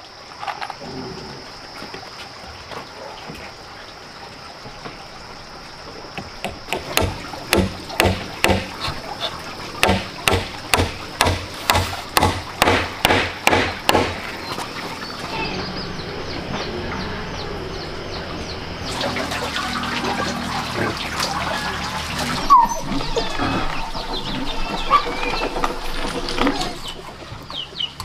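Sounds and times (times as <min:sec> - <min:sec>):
hammer driving a nail into wood: 0:06.4 - 0:08.8, 0:09.8 - 0:14.2.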